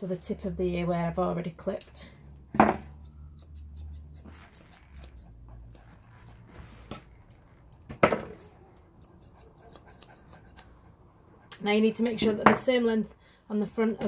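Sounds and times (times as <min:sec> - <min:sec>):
scissors snipping hair: 0:03.0 - 0:10.8.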